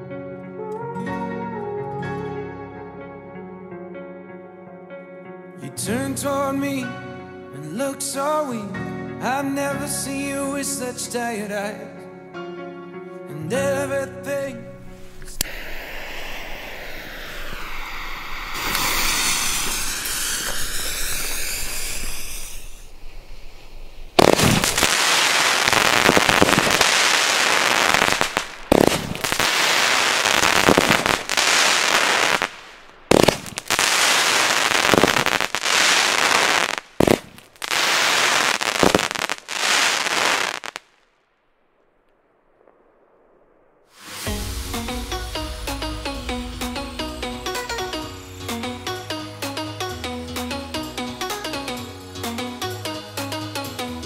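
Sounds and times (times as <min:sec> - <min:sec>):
firework volley with crackling: 0:14.7 - 0:49.6
fuse hissing: 0:14.8 - 0:24.4, 0:44.0 - 0:49.0.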